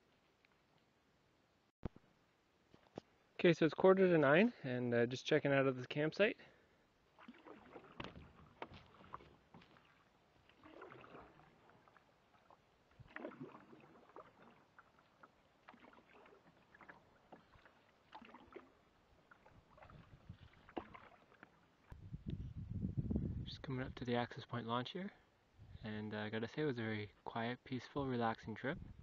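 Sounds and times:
canoe paddle splashing water: 0:07.0 - 0:22.0.

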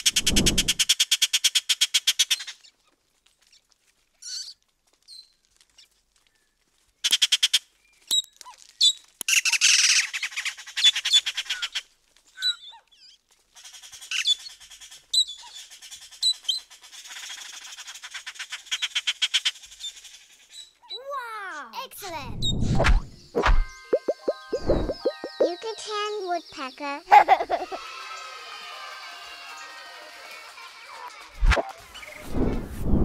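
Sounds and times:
jay rattling calls and squawks: 0:23.9 - 0:25.8.

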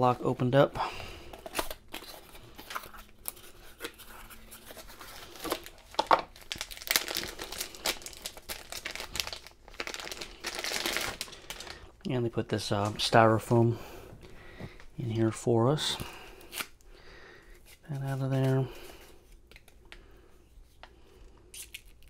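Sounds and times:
plastic bag crinkling: 0:04.6 - 0:11.9.

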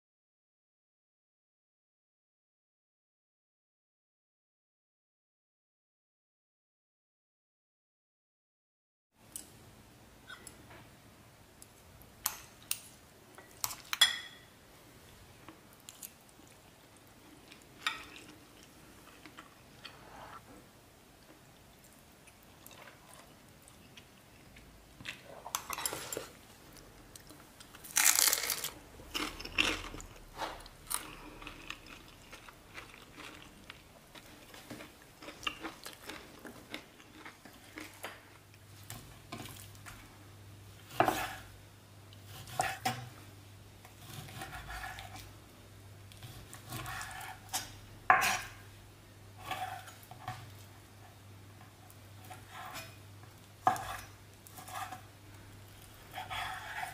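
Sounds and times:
metal utensils clinking on ceramic bowl: 0:13.6 - 0:14.5.

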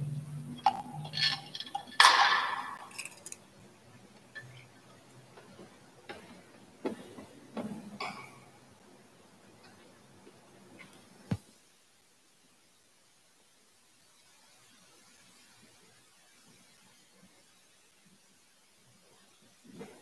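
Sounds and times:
metal censer chains clinking: 0:00.7 - 0:03.4.

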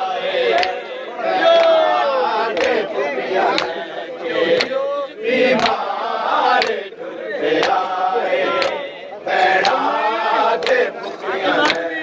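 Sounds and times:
men chanting a lament: 0:00.0 - 0:12.0
hands slapping chests: 0:00.5 - 0:00.9, 0:02.5 - 0:02.9, 0:03.5 - 0:03.8, 0:04.5 - 0:04.8, 0:05.6 - 0:05.8, 0:06.5 - 0:06.8, 0:07.6 - 0:08.8, 0:09.6 - 0:09.8, 0:10.6 - 0:10.9, 0:11.6 - 0:11.9.

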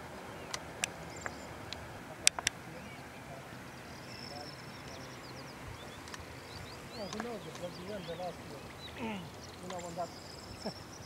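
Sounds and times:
faint bird chirps: 0:00.1 - 0:11.0
sharp clicks: 0:00.5 - 0:02.6, 0:06.0 - 0:06.3, 0:07.0 - 0:07.9, 0:09.6 - 0:10.0.

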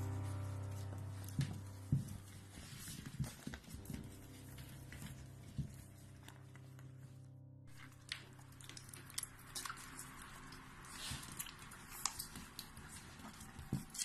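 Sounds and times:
puppies suckling wet smacks: 0:08.1 - 0:14.0.

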